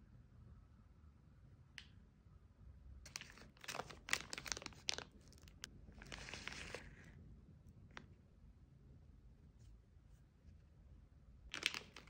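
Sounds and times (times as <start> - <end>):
plastic wrapper crinkling: 3.1 - 7.1, 11.5 - 12.0.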